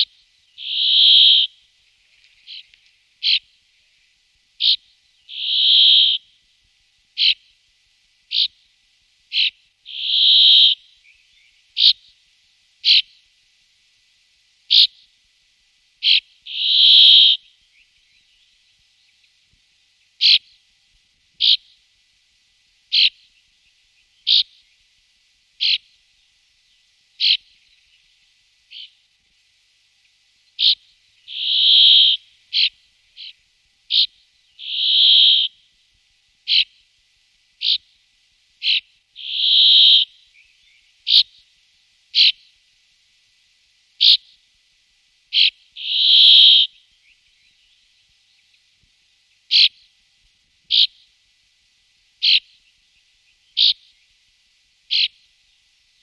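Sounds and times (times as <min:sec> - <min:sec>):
bird calling sharp notes: 0:00.6 - 0:01.6, 0:02.5 - 0:03.5, 0:04.6 - 0:06.3, 0:07.2 - 0:07.4, 0:09.3 - 0:10.9, 0:14.7 - 0:15.0, 0:16.0 - 0:17.5, 0:20.2 - 0:20.5, 0:21.4 - 0:21.7, 0:22.9 - 0:23.2, 0:25.6 - 0:25.8, 0:27.2 - 0:27.5, 0:30.6 - 0:35.6, 0:36.5 - 0:36.8, 0:38.6 - 0:40.2, 0:41.1 - 0:41.4, 0:42.2 - 0:42.4, 0:45.3 - 0:46.8, 0:49.5 - 0:49.8, 0:50.7 - 0:51.0, 0:52.2 - 0:52.5, 0:53.6 - 0:53.8, 0:54.9 - 0:55.2
harsh drawn-out bird note: 0:30.6 - 0:32.7, 0:34.6 - 0:35.5.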